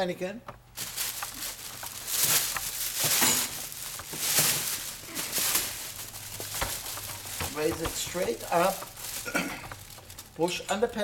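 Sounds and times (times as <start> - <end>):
plastic bag rustling and crinkling: 0.6 - 11.0.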